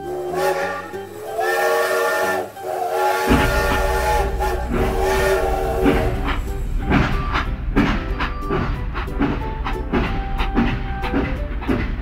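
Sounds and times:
steam locomotive whistle blasts: 0.0s - 8.7s
low rumble: 3.3s - 12.0s.

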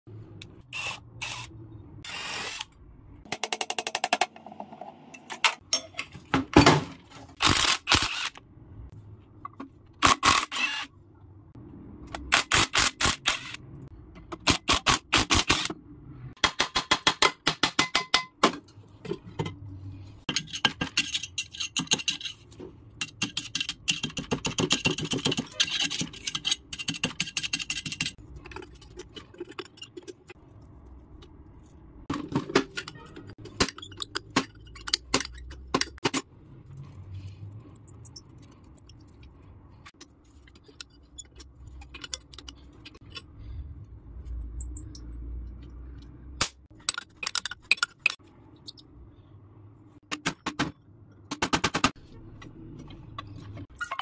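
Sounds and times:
spanner clicking and scraping metal: 20.2s - 22.4s, 23.0s - 30.4s, 32.7s - 36.3s.

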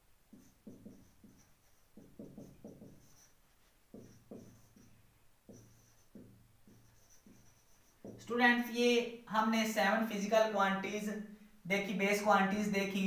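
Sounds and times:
marker writing on whiteboard: 0.3s - 8.4s.

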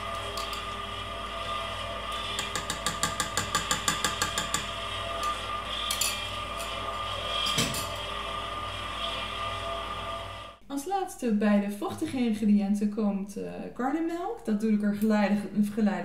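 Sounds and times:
stand mixer whisking batter: 0.0s - 10.5s
spoon tapping steel bowl: 2.3s - 4.7s.

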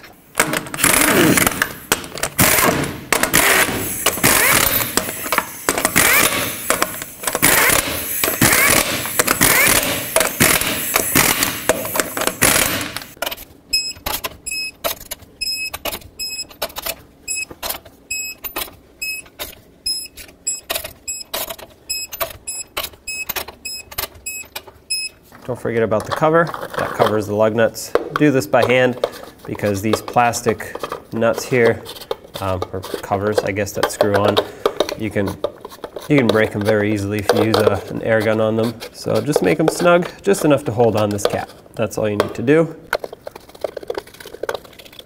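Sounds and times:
pneumatic impact wrench hammering: 0.4s - 13.2s
torque wrench clicks: 3.3s - 12.8s.

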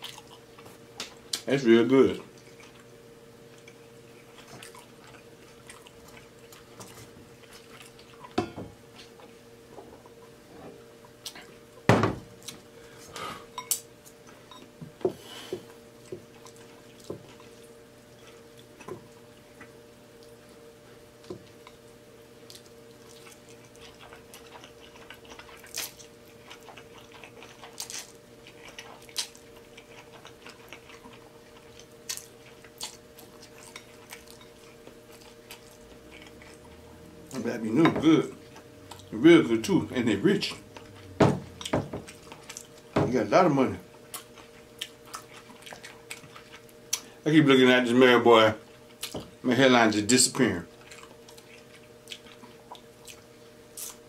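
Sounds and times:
eating sounds: 22.4s - 42.9s, 43.8s - 47.2s, 50.6s - 54.0s.

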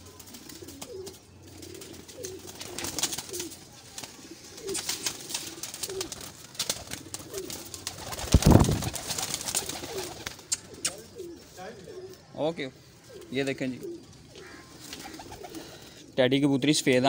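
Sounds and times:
pigeons cooing: 0.0s - 16.2s
wings flapping: 0.1s - 11.0s, 14.8s - 15.8s.

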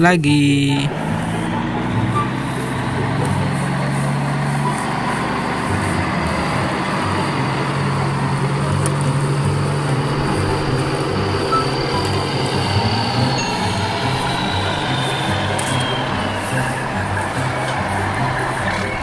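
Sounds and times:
truck engine rumble: 0.0s - 19.0s.

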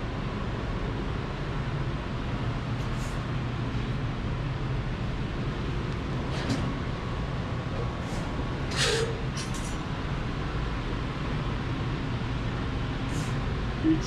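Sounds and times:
machines and ventilation humming: 0.0s - 14.0s
burst of hissing: 13.1s - 13.4s.

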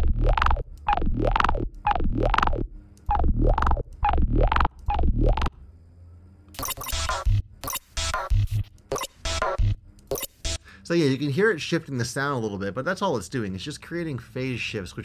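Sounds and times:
synth bass loop: 0.0s - 5.6s, 6.6s - 10.6s.

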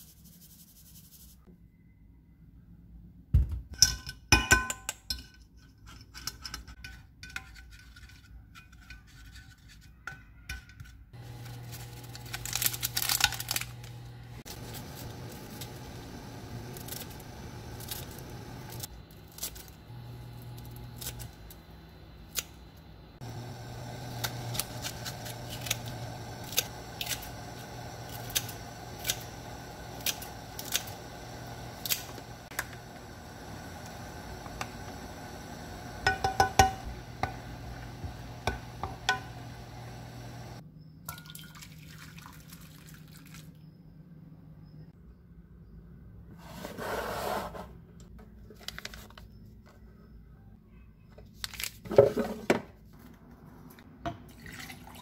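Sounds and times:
spoon and strainer clinking on pot: 3.7s - 11.0s, 36.0s - 37.8s, 38.4s - 39.5s.

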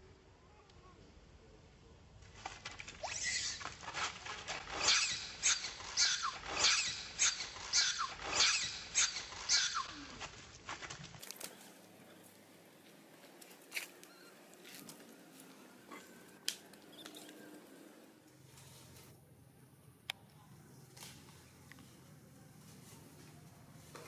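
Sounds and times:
baby monkey screaming: 3.1s - 3.6s, 4.8s - 9.9s.

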